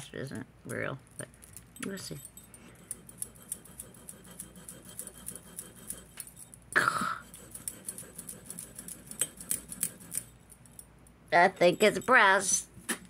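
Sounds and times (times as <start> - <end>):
metal chain links clinking: 1.4 - 3.1
chain scraping on stone: 1.4 - 6.6, 7.2 - 10.9.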